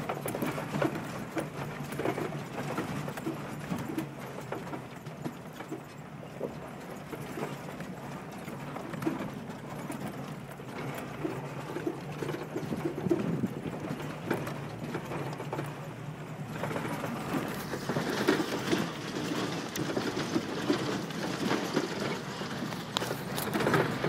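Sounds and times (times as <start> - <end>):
low engine hum: 0.0 - 24.0
vehicle rattling and clunking: 0.0 - 24.0.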